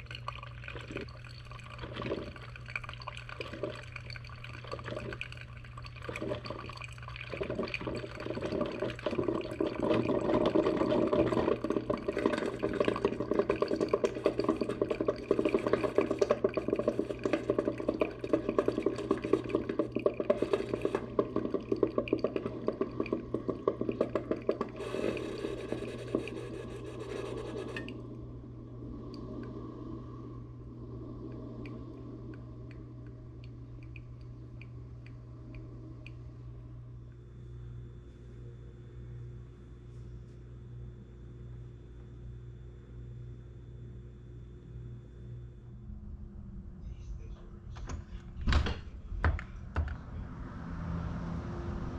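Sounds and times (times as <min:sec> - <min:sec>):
water filling a container: 0:00.0 - 0:28.2.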